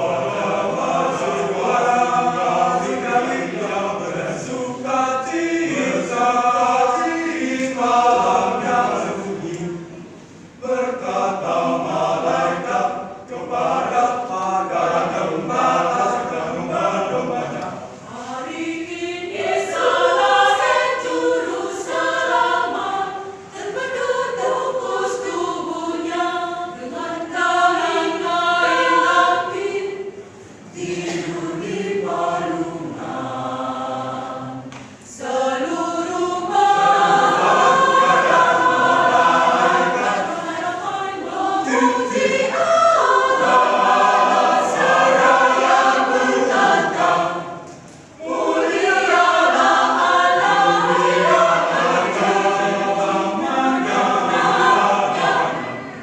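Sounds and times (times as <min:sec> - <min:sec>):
choir singing in harmony: 0:00.0 - 0:56.0.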